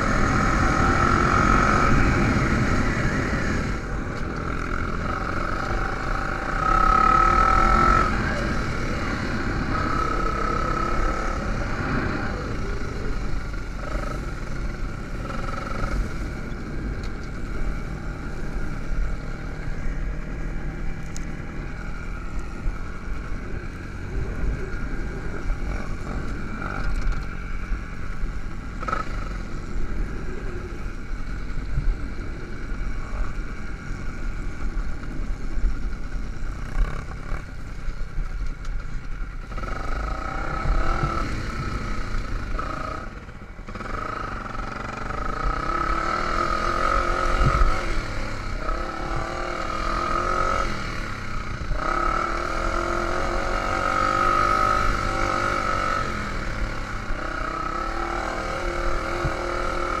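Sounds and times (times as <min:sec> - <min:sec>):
dirt bike engine revving: 0:00.0 - 0:16.8, 0:39.5 - 1:00.0
steady low rumble: 0:00.0 - 1:00.0.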